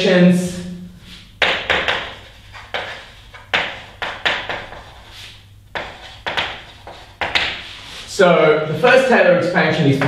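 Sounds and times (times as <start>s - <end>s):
chalk scratching on blackboard: 1.1s - 8.1s
chalk tapping on blackboard: 1.4s - 7.8s.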